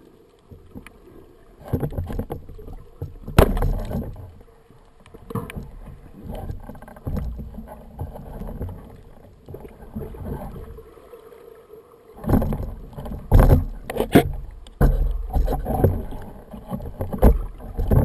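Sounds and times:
underwater water rumble: 0:00.0 - 0:18.0
dull knocks: 0:12.2 - 0:16.2.

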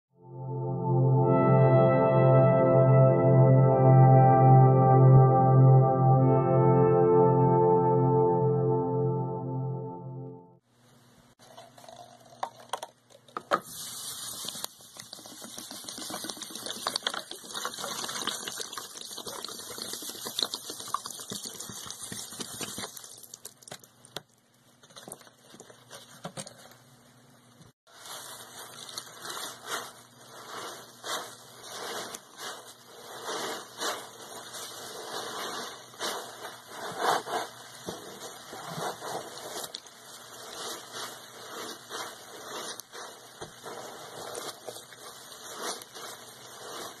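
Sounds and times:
liquid pouring and splashing: 0:11.4 - 0:24.0.

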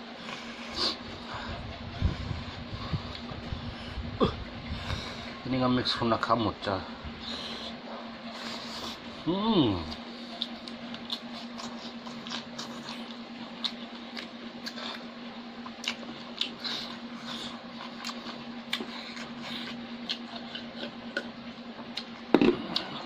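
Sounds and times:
steady low hum: 0:00.0 - 0:23.0
wet chewing and mouth clicks: 0:09.9 - 0:23.0.

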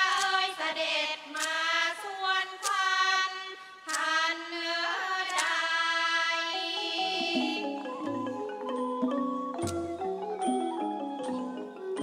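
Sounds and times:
woman singing: 0:00.0 - 0:07.8.

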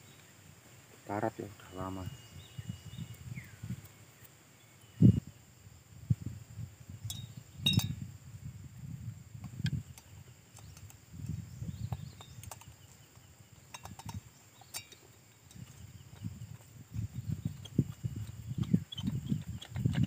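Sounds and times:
hand tool clicking on bolts: 0:13.7 - 0:16.7, 0:17.5 - 0:20.0.

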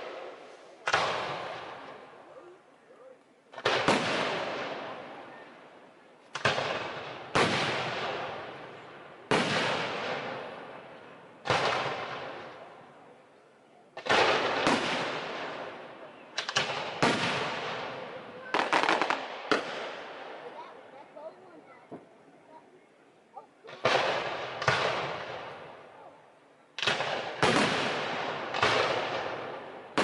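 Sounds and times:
firework booms with echo: 0:00.0 - 0:02.1, 0:03.5 - 0:05.2, 0:06.3 - 0:12.8, 0:14.0 - 0:20.7, 0:23.7 - 0:25.9, 0:26.8 - 0:30.0.

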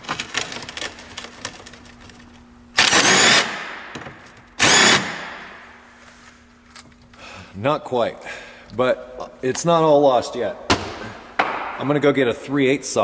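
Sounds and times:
impact wrench hammering: 0:02.8 - 0:05.6, 0:10.7 - 0:11.9.

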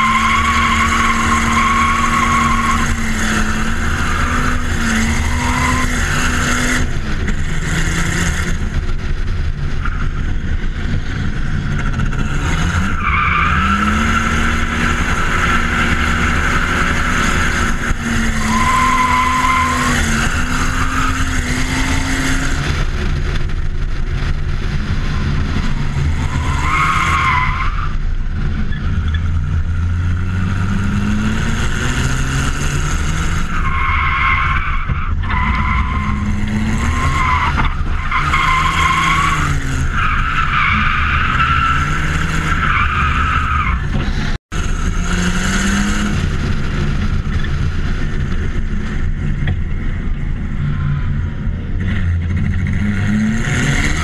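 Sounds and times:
tyre squeal: 0:00.0 - 0:06.3
diesel engine revving: 0:00.0 - 0:54.0.

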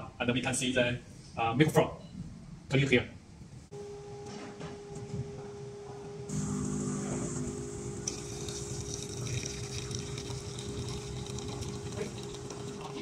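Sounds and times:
coffee machine motor hum: 0:06.2 - 0:13.0.

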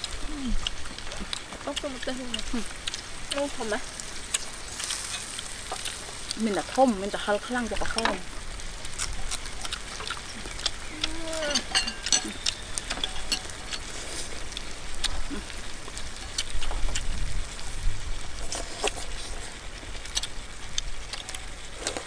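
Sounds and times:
beef sizzling in a pan: 0:00.0 - 0:21.8
chopsticks clinking against bowls: 0:11.0 - 0:14.0.

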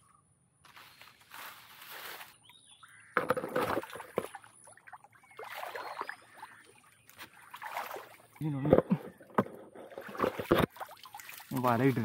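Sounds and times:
water splashing and sloshing: 0:03.1 - 0:12.0.

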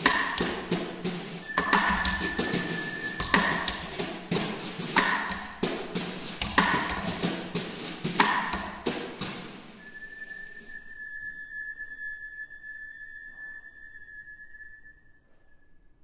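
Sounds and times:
snare drums struck with mallets: 0:00.0 - 0:09.8
steady high tone: 0:01.2 - 0:04.1.

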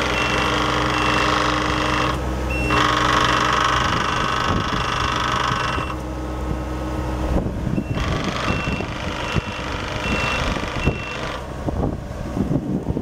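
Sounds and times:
hydraulic whine: 0:00.0 - 0:12.5
diesel engine running: 0:00.0 - 0:13.0
short alarm beeps: 0:00.1 - 0:01.4, 0:02.5 - 0:02.9, 0:07.8 - 0:11.2.

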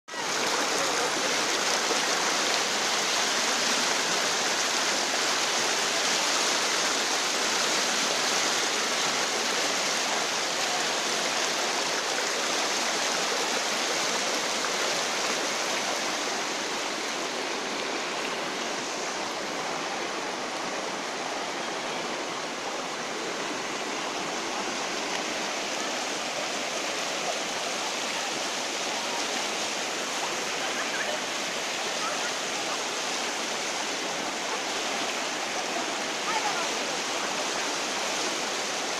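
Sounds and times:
floodwater rushing: 0:00.1 - 0:38.9.

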